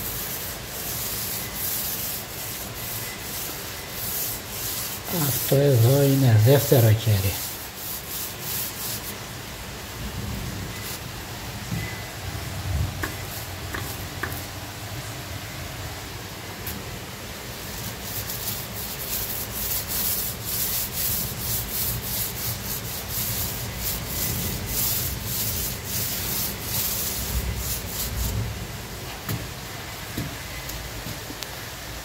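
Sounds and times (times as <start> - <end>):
paint roller rubbing on wall: 0.0 - 9.3, 10.7 - 11.0, 17.5 - 28.6.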